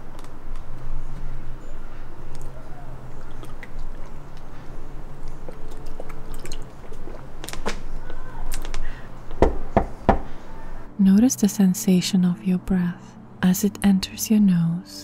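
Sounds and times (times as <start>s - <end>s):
person gulping water: 3.1s - 4.5s, 5.2s - 8.8s
plastic bottle crackling: 5.2s - 9.7s.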